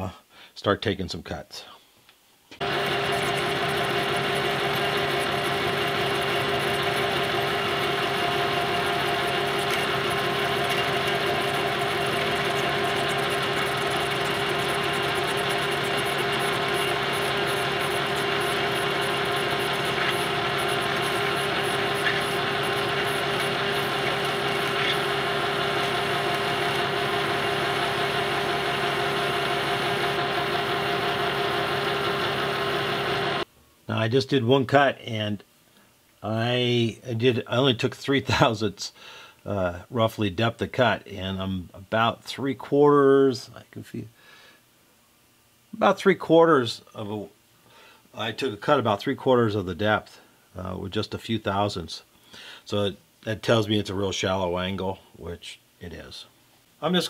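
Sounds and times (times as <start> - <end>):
metal lathe motor humming: 2.6 - 33.4.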